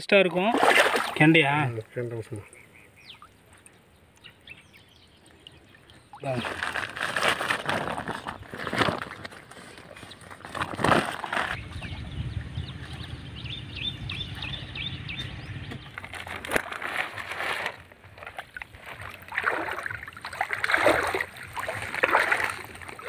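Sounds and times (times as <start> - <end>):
pond water sloshing and splashing: 0.0 - 23.0
low rumble: 11.5 - 16.4.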